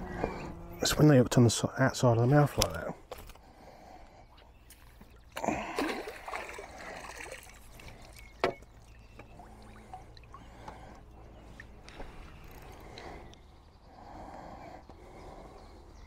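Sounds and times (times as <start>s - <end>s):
water splashing and dripping: 4.7s - 12.2s.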